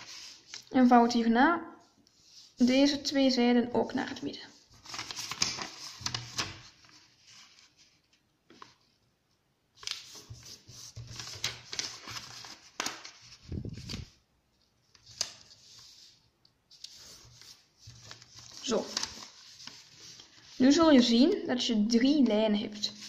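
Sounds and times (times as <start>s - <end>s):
paper rustling as folded: 0.0s - 0.8s, 4.1s - 9.1s, 9.8s - 21.3s.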